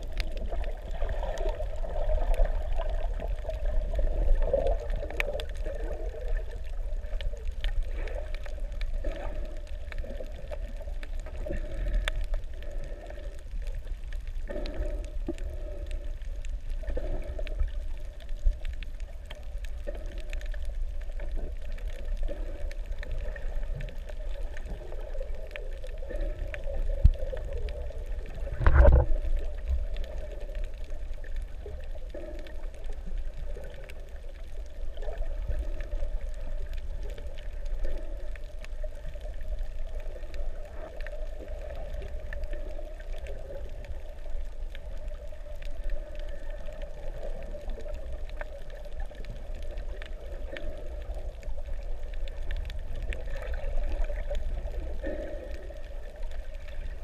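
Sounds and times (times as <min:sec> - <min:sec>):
faint clicks and crackles: 0:00.0 - 0:57.0
muffled underwater rumble: 0:00.0 - 0:57.0
rush of water: 0:16.8 - 0:57.0.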